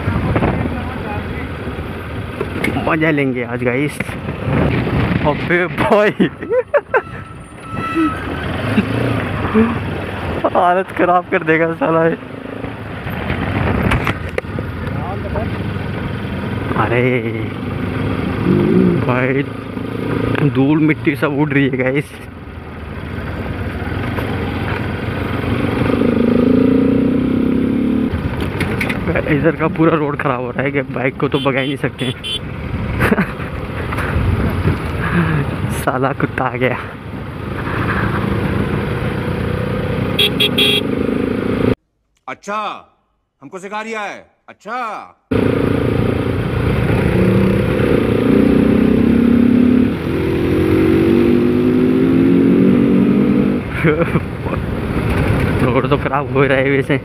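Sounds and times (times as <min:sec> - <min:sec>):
motorcycle engine and exhaust: 0:11.5 - 0:41.8, 0:45.3 - 0:57.0.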